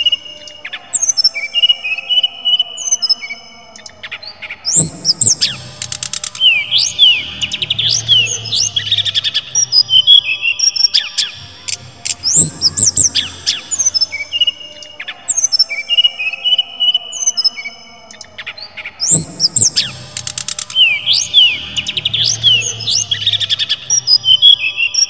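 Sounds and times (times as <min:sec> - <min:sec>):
bird whistling: 0:04.7 - 0:15.5, 0:19.0 - 0:25.0
sharp clicks: 0:05.2 - 0:06.5, 0:19.6 - 0:20.9.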